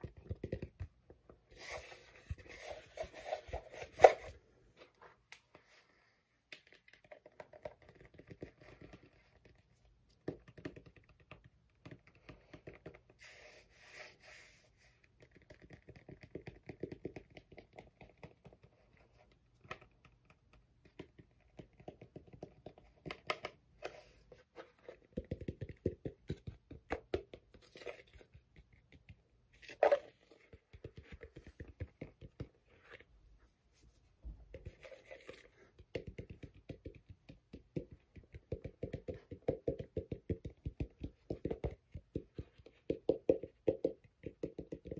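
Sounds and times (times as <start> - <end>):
fingertips tapping on fabric cap: 6.6 - 13.2, 15.2 - 19.0, 19.6 - 24.0, 24.9 - 27.6, 28.2 - 32.7, 34.5 - 44.9.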